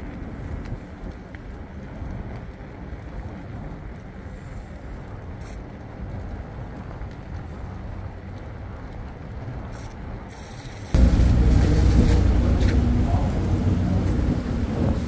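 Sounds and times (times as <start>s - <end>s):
vehicle rumble: 10.8s - 15.0s
steady engine hum: 11.0s - 15.0s.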